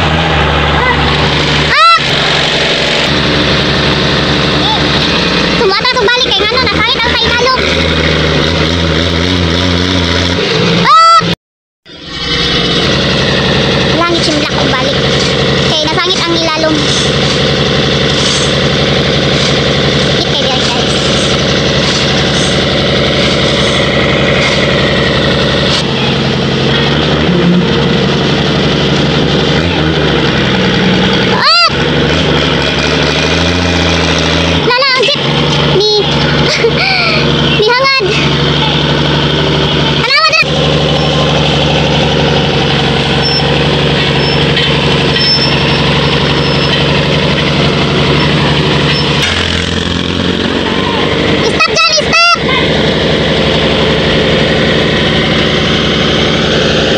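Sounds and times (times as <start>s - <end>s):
truck engine idling: 0.0s - 9.4s, 11.8s - 56.9s.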